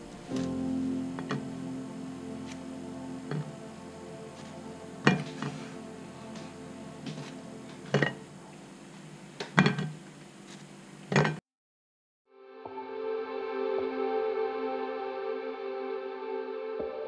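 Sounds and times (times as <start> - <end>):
soft background music: 0.0 - 9.3, 12.4 - 17.0.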